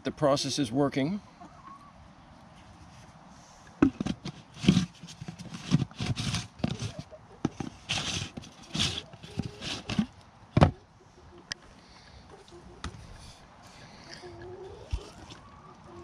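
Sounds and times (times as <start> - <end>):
plastic bucket lids knocking and clicking: 3.8 - 10.8.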